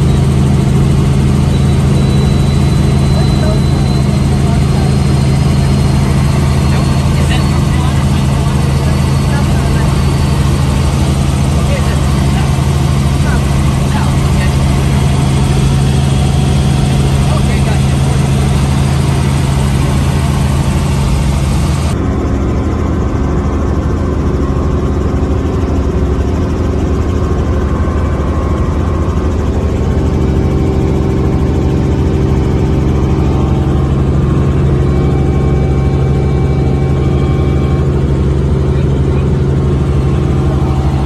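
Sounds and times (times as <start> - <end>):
helicopter engine and rotor: 0.0 - 41.0.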